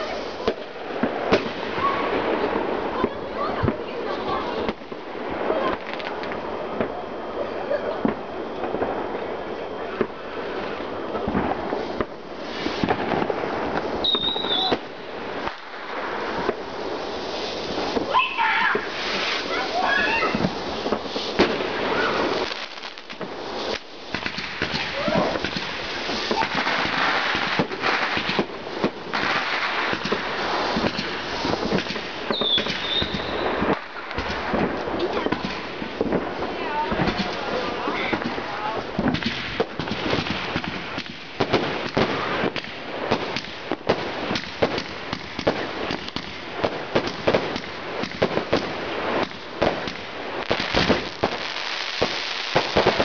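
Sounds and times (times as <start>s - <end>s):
fireworks crackling and popping: 0.0s - 53.0s
firework whistle: 14.0s - 14.9s, 17.8s - 22.6s, 30.8s - 33.8s.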